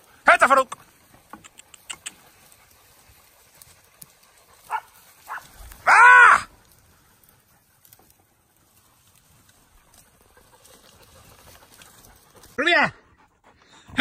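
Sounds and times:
dogs yelping: 1.4s - 8.1s, 9.7s - 12.6s
dog barking drawn-out: 4.7s - 6.5s.

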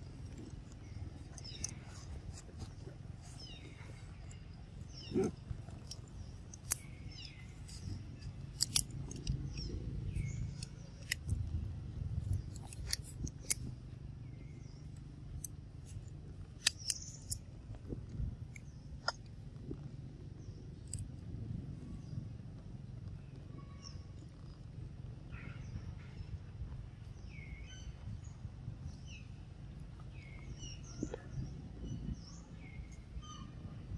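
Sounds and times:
low rumble: 17.2s - 33.9s.

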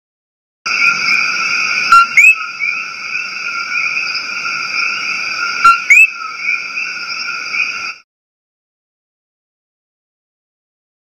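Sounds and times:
frog chorus: 0.7s - 8.0s
frog two-note call: 1.9s - 2.4s, 5.6s - 6.1s.

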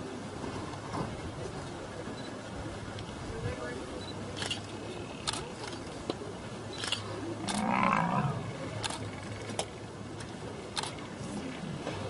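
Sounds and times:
lion calling: 7.4s - 8.8s.

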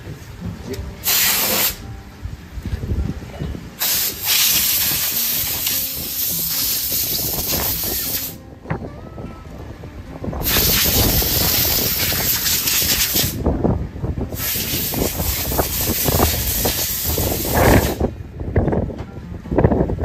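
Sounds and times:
compressed air blasting: 1.0s - 1.9s, 3.8s - 8.4s, 10.4s - 13.4s, 14.3s - 18.1s.

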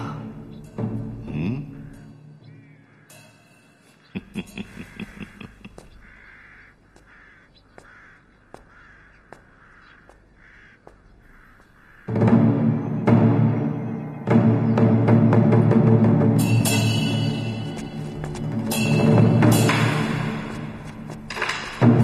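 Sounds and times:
crows cawing: 1.6s - 12.4s
music with timpani: 12.1s - 22.0s
sharp clicks or knocks: 21.3s - 22.0s.

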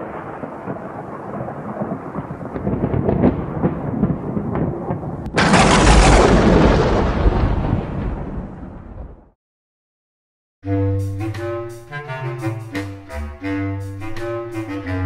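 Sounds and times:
lightning crack: 0.0s - 9.4s
thunder rumbling: 0.0s - 9.4s.

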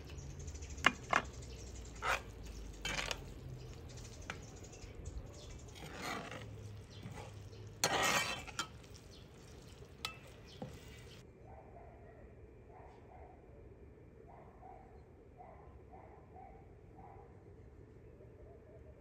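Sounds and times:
faint sizzle: 0.0s - 11.2s
metal spoon scraping a pot: 0.0s - 11.2s.

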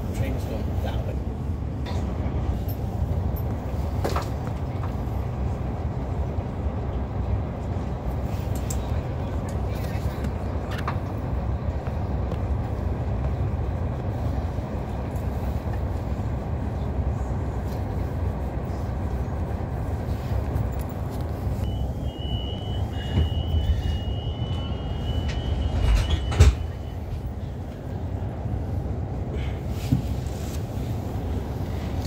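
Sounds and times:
train carriage low rumble: 0.0s - 32.0s
high beeping tone: 21.7s - 27.0s.

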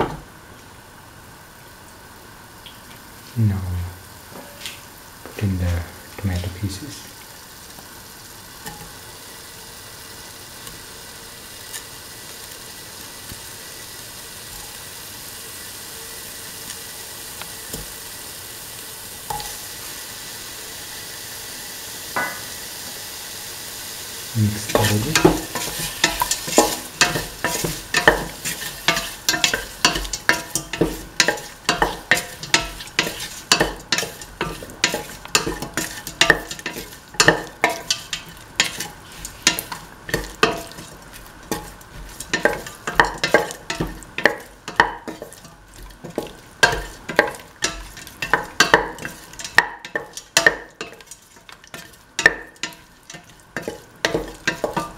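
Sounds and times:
meat sizzling in a pot: 0.0s - 54.9s
utensil scraping metal pot: 24.6s - 54.9s.

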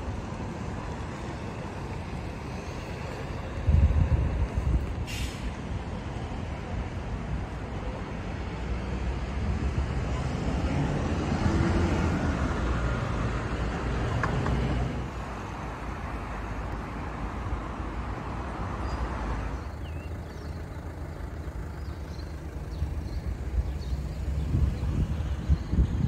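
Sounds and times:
low road rumble: 0.0s - 26.0s
vehicle passing: 8.8s - 16.3s, 18.3s - 26.0s.

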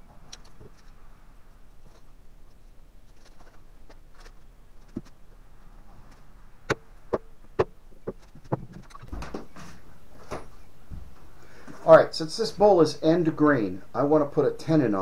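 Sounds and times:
faint scratching and handling: 0.2s - 6.4s.

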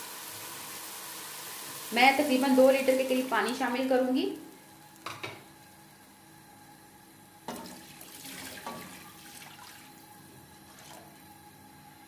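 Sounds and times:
water pouring into a pot: 7.5s - 11.2s.

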